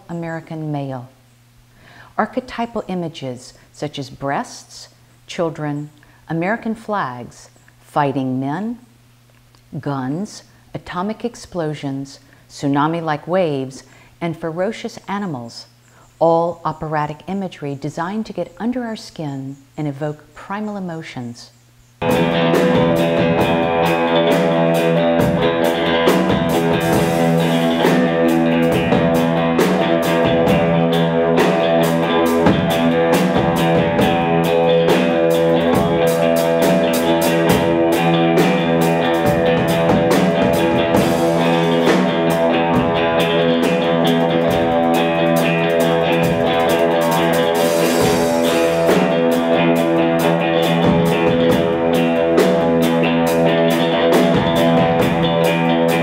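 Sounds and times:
electric guitars strumming: 22.0s - 56.0s
rock drum kit: 22.0s - 56.0s.

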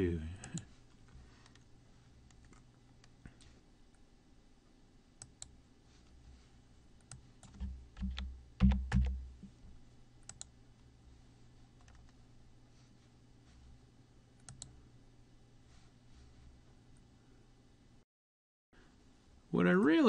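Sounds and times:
keyboard keystrokes: 7.4s - 9.3s
computer mouse clicks: 10.2s - 10.5s, 14.4s - 14.8s.

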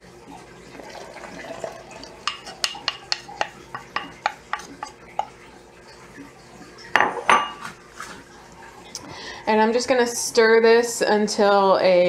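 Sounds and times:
batter pouring: 0.5s - 6.1s.

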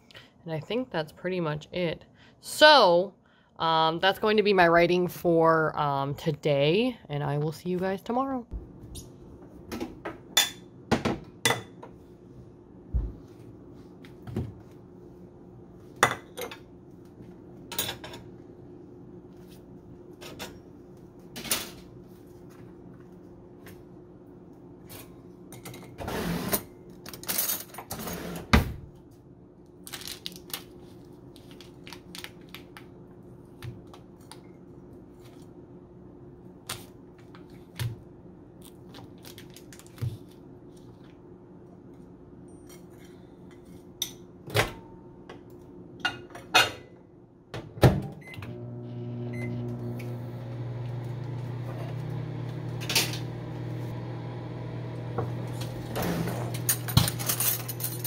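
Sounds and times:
low steady hum: 28.9s - 58.0s
microwave oven running: 43.4s - 58.0s
kitchen utensils clattering: 55.6s - 58.0s.

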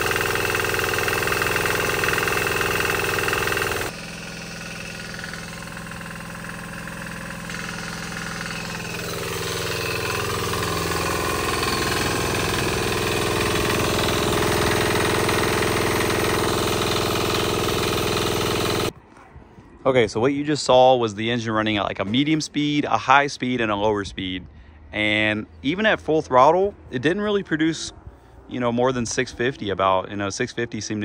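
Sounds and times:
diesel engine running a generator: 0.0s - 18.9s.

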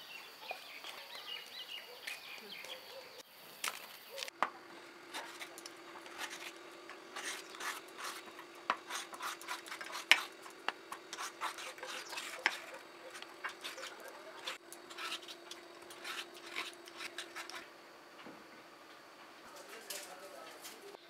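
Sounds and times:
vegetable peeler scraping skin: 5.1s - 17.7s.

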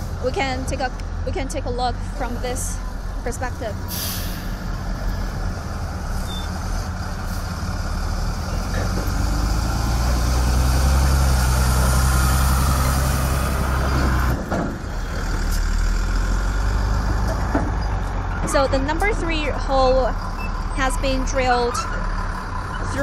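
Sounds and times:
heavy truck engines running: 0.0s - 23.0s.

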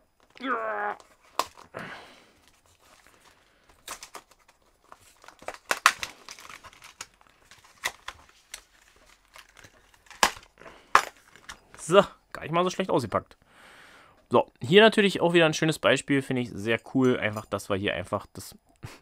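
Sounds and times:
plastic packaging crinkling: 0.1s - 11.9s.

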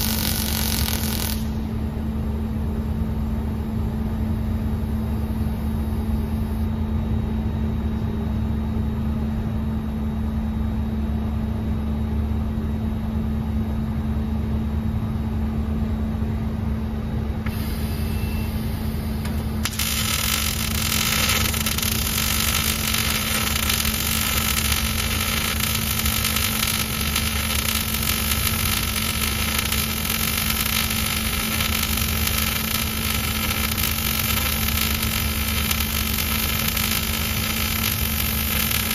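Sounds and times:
welding arc crackling hiss: 0.0s - 1.8s, 17.5s - 38.9s
machine hum: 0.0s - 7.4s, 16.8s - 38.9s.

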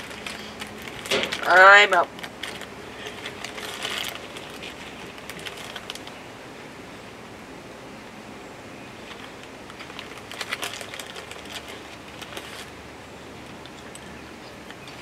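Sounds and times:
crunchy snack crackling: 0.0s - 6.2s, 9.1s - 12.8s.

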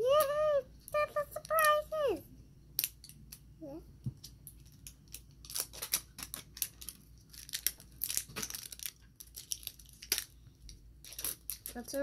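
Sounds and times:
plastic wrapping crackling and tearing: 4.4s - 12.0s.

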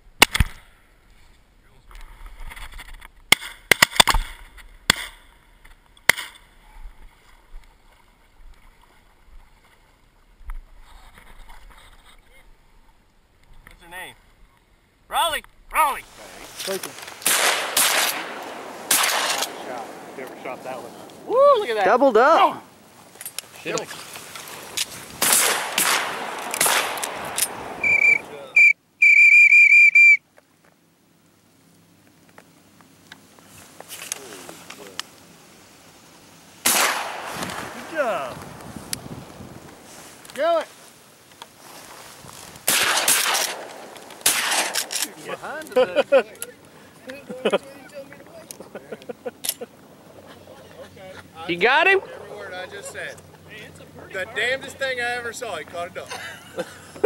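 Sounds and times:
sharp cracks: 0.1s - 0.8s, 2.6s - 6.5s, 15.4s - 21.4s, 23.0s - 30.2s, 36.6s - 39.0s, 42.5s - 45.7s
shotgun shot: 17.2s - 20.2s, 25.2s - 28.3s, 36.6s - 37.9s, 42.6s - 45.2s
loud whistle blasts: 27.8s - 30.2s.

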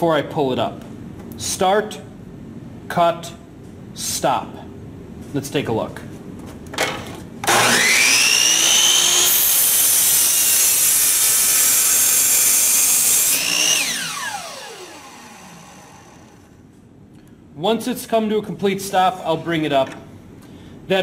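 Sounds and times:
miter saw motor whining: 7.4s - 16.6s
saw blade rasping through wood: 7.5s - 16.4s.

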